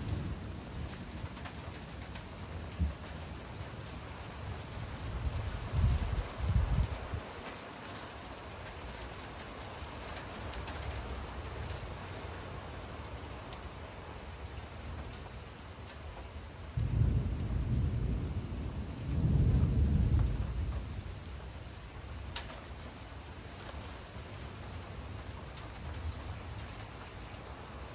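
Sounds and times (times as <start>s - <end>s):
rain hiss: 0.0s - 27.9s
thunder peal: 16.8s - 20.9s.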